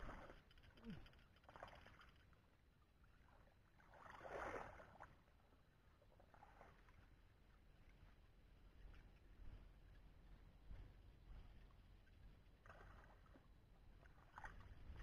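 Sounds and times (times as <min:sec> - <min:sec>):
splashing in muddy water: 0:03.8 - 0:05.1.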